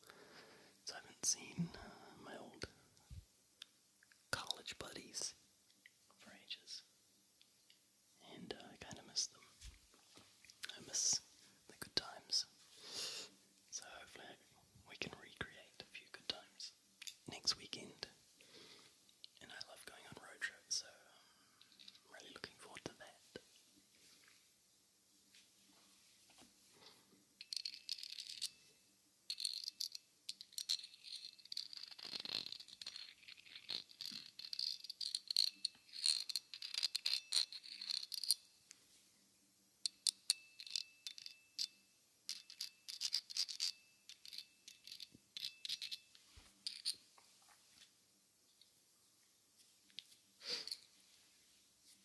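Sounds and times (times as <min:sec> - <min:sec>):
faint metallic ringing: 0:39.8 - 0:47.0.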